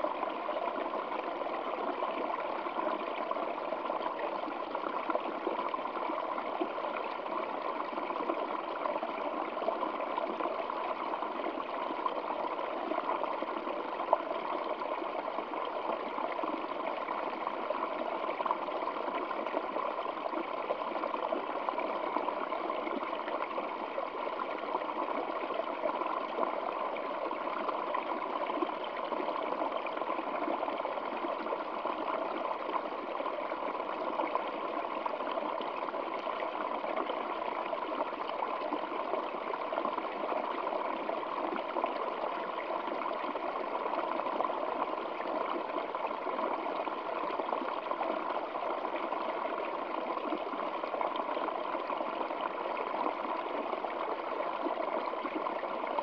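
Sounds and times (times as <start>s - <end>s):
stream trickling over rocks: 0.0s - 56.0s.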